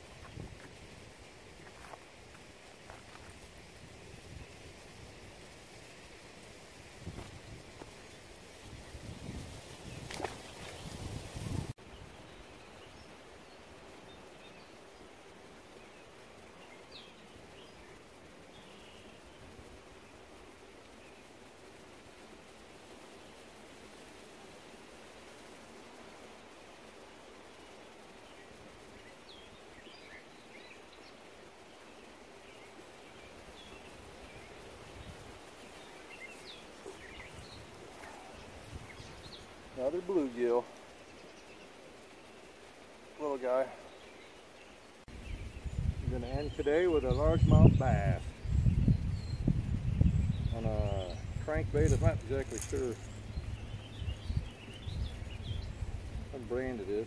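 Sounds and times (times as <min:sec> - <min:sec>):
faint outdoor background noise: 0:00.0 - 0:57.0
open-air hush: 0:00.0 - 0:57.0.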